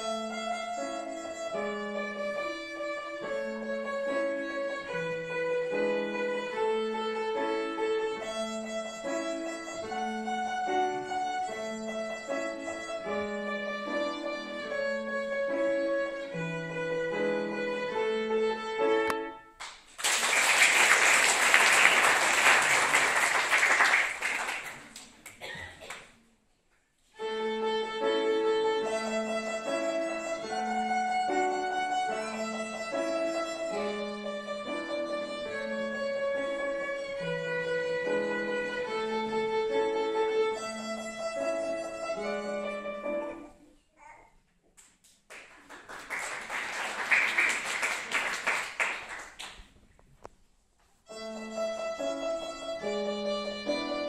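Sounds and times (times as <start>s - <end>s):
violin with piano: 0.0s - 19.5s, 27.2s - 43.6s, 51.0s - 54.0s.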